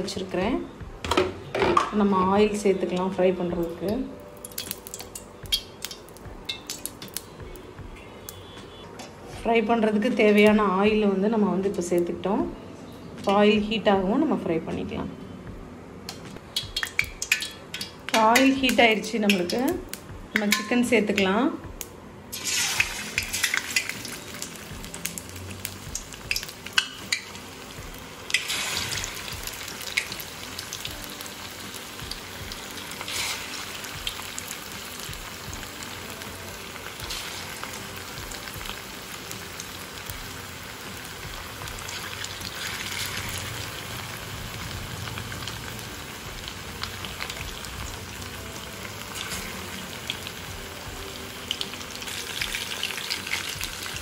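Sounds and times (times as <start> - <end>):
oil popping and crackling: 4.4 - 7.3, 16.4 - 20.7, 21.8 - 54.0
chicken sizzling in oil: 22.3 - 54.0.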